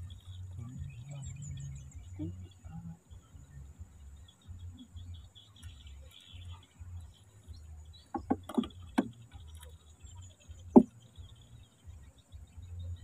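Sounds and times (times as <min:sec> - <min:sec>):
low uneven rumble: 0:00.0 - 0:13.0
hollow knocks on wooden canoe hull: 0:08.0 - 0:09.8, 0:10.6 - 0:11.2.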